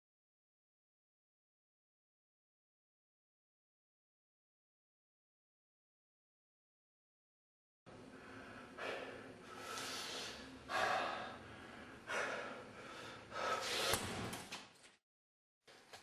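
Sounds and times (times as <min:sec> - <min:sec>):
man breathing hard: 0:07.9 - 0:14.2.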